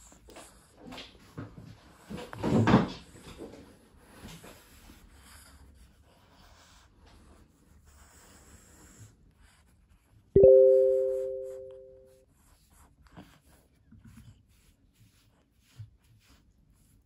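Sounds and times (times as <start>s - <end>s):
two-tone chime: 10.4s - 12.1s.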